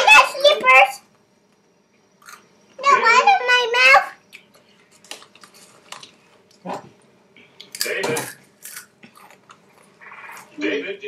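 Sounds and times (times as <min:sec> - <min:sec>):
chips crunching: 0:07.6 - 0:10.5.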